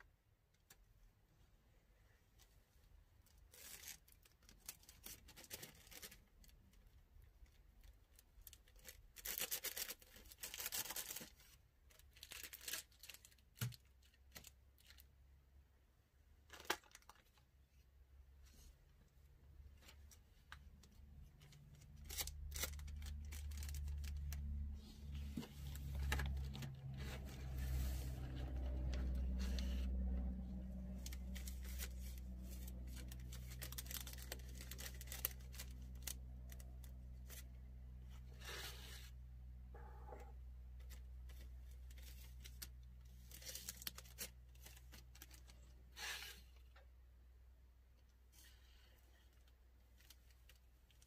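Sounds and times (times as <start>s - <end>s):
plastic bag crinkling: 20.1s - 37.4s, 41.8s - 45.8s
low hum: 20.8s - 42.1s.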